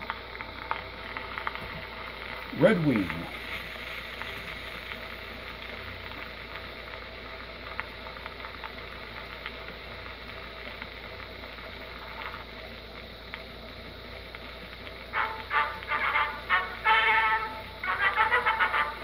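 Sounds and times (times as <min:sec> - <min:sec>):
phonograph surface hiss: 0:00.0 - 0:19.0
faint recorded music: 0:15.0 - 0:19.0.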